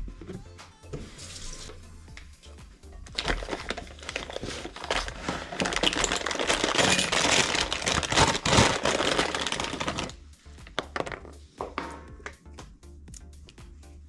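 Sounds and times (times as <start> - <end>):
plastic bag crinkling: 3.1 - 11.4.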